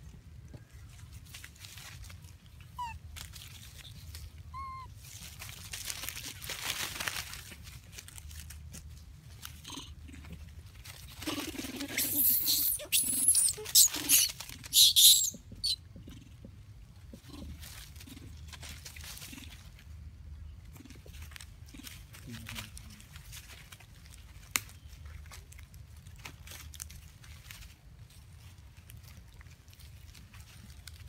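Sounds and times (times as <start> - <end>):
rustling: 0.0 - 31.0
monkeys screaming: 4.6 - 4.9, 11.3 - 15.8.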